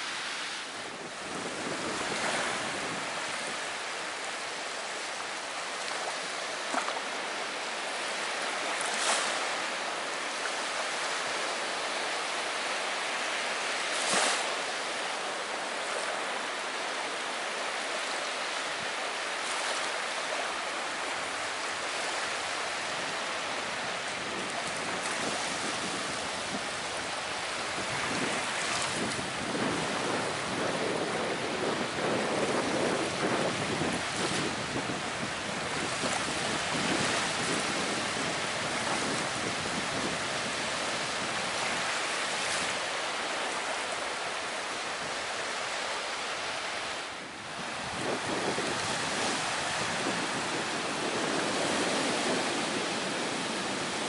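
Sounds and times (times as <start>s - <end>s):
wind rumble on microphone: 0.0s - 7.0s, 18.2s - 54.0s
small waves breaking on shore: 0.0s - 54.0s.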